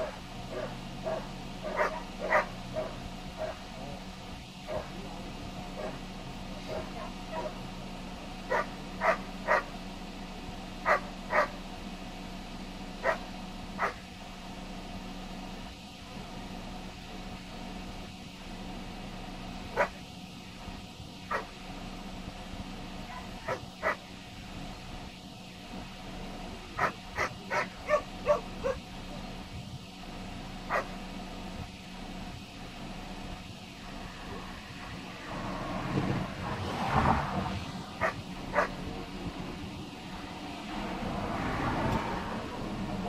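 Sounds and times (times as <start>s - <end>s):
dog barking: 0.0s - 4.0s, 4.7s - 5.0s, 5.8s - 6.0s, 6.6s - 7.6s, 8.5s - 9.7s, 10.8s - 11.6s, 13.0s - 13.2s, 13.8s - 14.0s, 19.7s - 20.0s, 21.3s - 21.5s, 23.1s - 24.1s, 26.8s - 28.8s, 30.7s - 30.9s, 38.0s - 38.8s.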